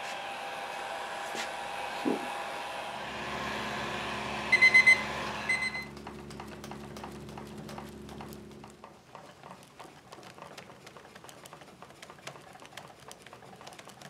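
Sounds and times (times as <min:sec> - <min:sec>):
heat gun blowing hiss: 0:00.0 - 0:05.5
low hum: 0:01.1 - 0:08.9
high electronic beeps: 0:04.5 - 0:05.9.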